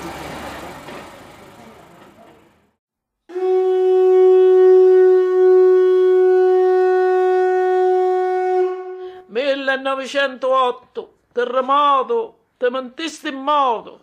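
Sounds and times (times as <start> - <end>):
long horn-like wind instrument note: 3.3 - 9.3.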